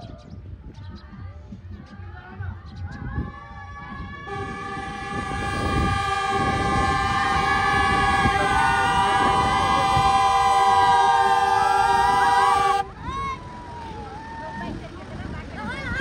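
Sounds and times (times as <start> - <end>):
horn-like tones wavering: 4.3 - 12.9
jeep engine: 4.4 - 12.8.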